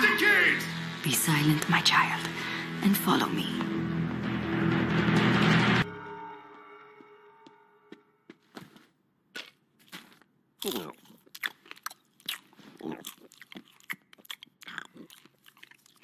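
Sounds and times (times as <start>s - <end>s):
popcorn chewing crunches: 9.3s - 16.0s.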